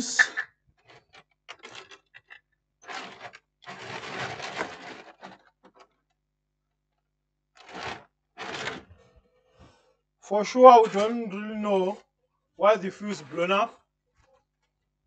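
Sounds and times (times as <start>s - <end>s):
small parts clicking and rattling: 0.8s - 6.2s
rustling: 0.9s - 6.0s, 7.6s - 9.0s.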